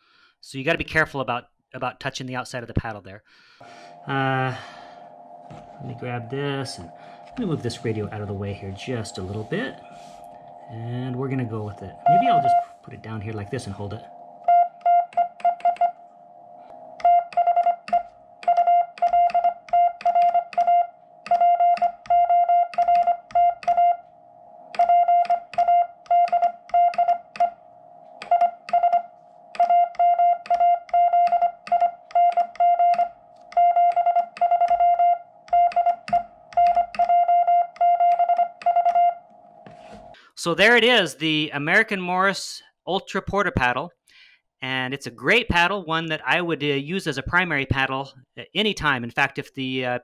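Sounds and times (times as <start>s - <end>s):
morse code beeps: 3.6s - 24.1s, 24.7s - 40.1s.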